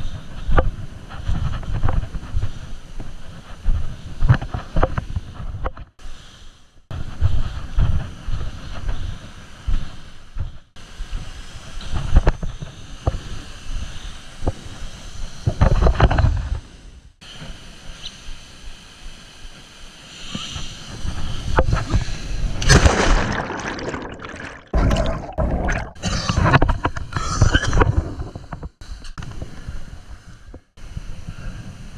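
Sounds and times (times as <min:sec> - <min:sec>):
stream rushing over rocks: 0:22.6 - 0:25.9.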